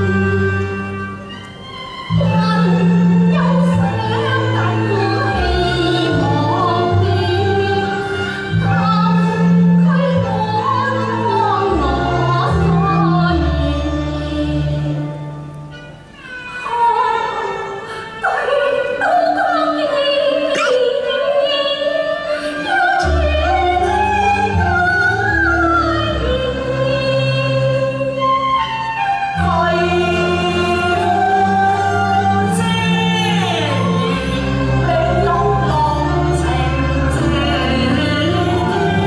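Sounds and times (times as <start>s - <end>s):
instrumental ensemble: 0.0s - 19.2s
opera singing voice: 2.1s - 15.4s, 16.6s - 39.0s.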